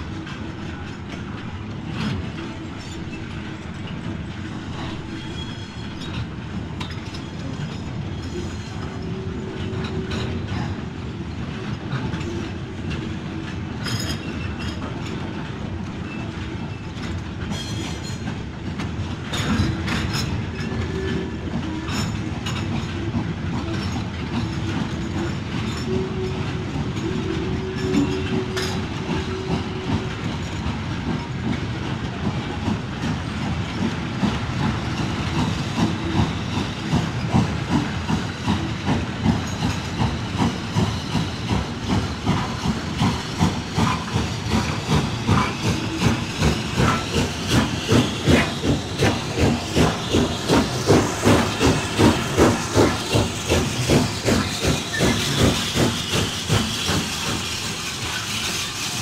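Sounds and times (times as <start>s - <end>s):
model train wheels clicking: 17.0s - 59.0s.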